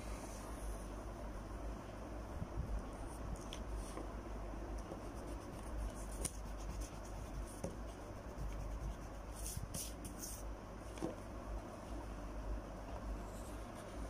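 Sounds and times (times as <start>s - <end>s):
low steady hum: 0.0s - 14.0s
pencil scratching on paper: 5.0s - 10.4s.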